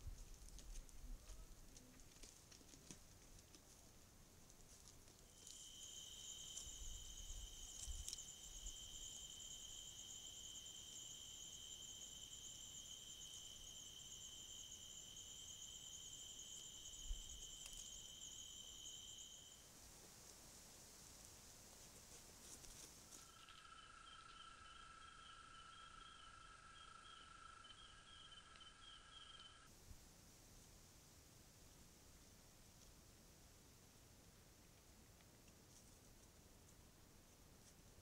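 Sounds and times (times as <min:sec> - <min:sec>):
insects trilling: 0:05.3 - 0:19.7, 0:22.4 - 0:29.7.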